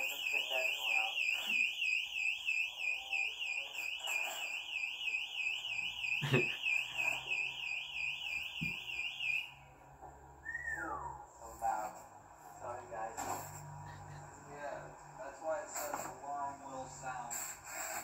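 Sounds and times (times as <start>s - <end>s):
door alarm warbling tone: 0.0s - 9.6s.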